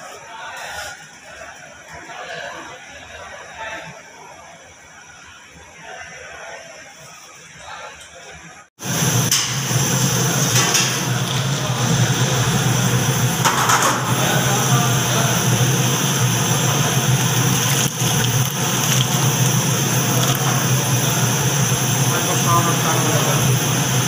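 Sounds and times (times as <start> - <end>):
dough balls sizzling in hot oil: 8.8 - 24.0
loud low hum: 8.8 - 24.0.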